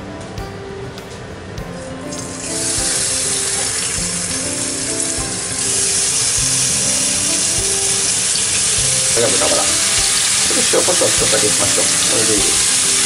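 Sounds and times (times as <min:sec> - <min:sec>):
pork sizzling in a frying pan: 0:02.1 - 0:13.0.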